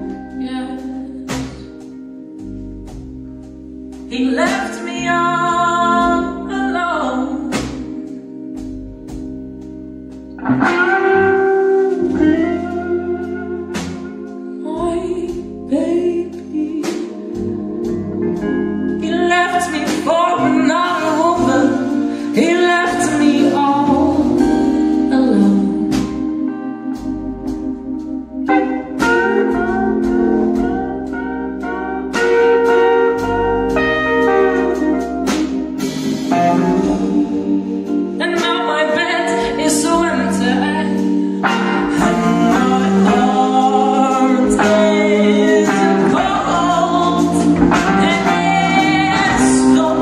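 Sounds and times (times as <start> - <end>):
woman singing: 0.0 - 1.8, 4.1 - 8.0, 14.6 - 17.5, 19.0 - 26.7, 36.6 - 50.0
drum kit: 0.0 - 6.6, 7.5 - 50.0
electric guitar: 0.0 - 50.0.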